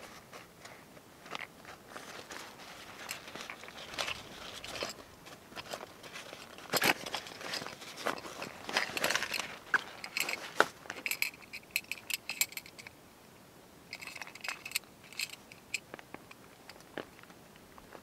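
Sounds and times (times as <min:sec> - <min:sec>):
rustling: 0:00.0 - 0:12.9
small clicks and clinks: 0:05.6 - 0:13.0, 0:13.9 - 0:17.3.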